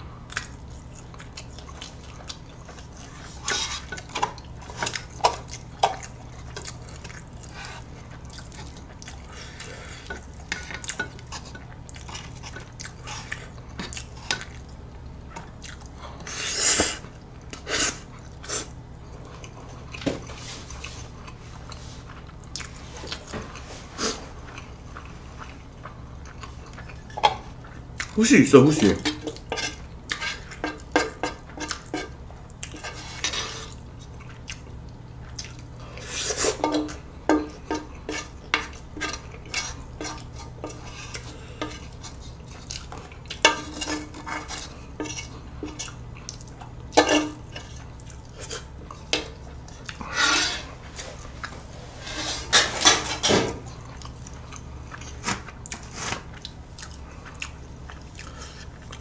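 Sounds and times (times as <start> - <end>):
wooden spoon scraping pan: 50.1 - 51.0, 51.8 - 53.3.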